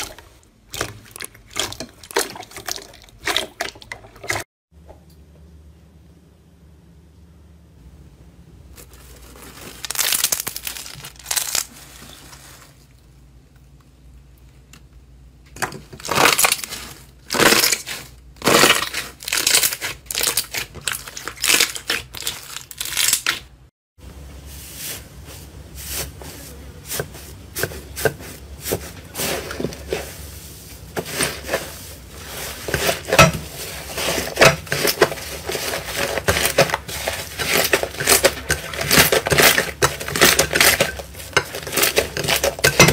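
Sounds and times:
slime squishing and crackling: 0.0 - 4.3, 8.8 - 12.6, 15.9 - 23.7, 26.9 - 42.9.

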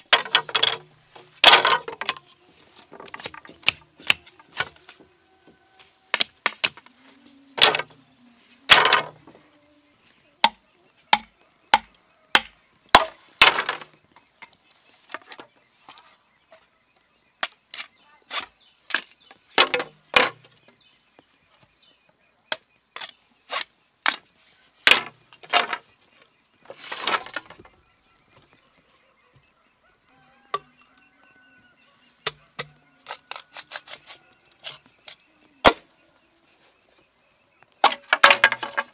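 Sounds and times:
machete chopping bamboo: 3.0 - 4.9, 6.1 - 6.9, 10.4 - 13.9, 22.5 - 24.3, 32.2 - 35.9, 37.8 - 38.9.

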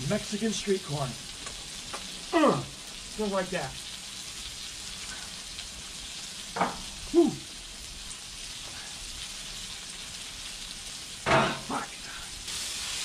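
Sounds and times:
steak sizzling on griddle: 0.0 - 13.0.

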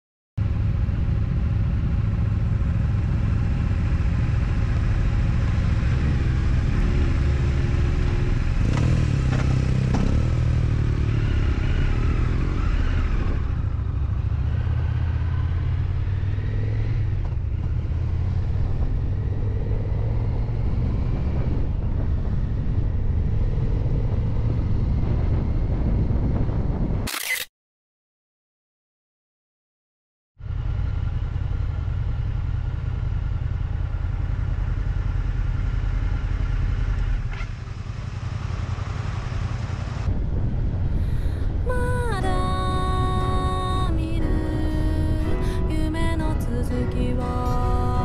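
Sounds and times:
motorcycle engines riding: 0.4 - 26.5, 30.4 - 42.4.

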